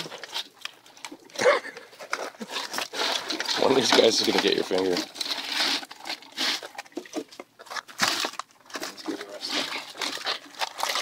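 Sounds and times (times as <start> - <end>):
shells and netting clattering: 0.0 - 11.0
crabs scraping wire mesh trap: 2.6 - 6.8.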